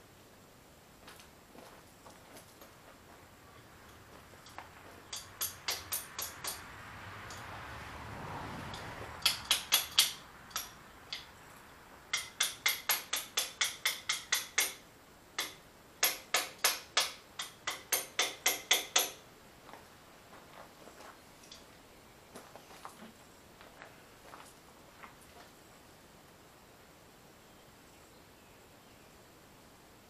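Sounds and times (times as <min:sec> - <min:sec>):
hammer striking metal: 0:05.1 - 0:06.6, 0:08.7 - 0:11.3, 0:12.1 - 0:14.8, 0:15.4 - 0:19.2.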